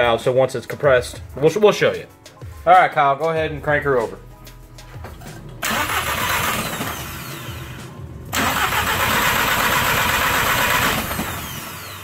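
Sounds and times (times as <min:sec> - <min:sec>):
car engine cranking: 0:05.2 - 0:12.0.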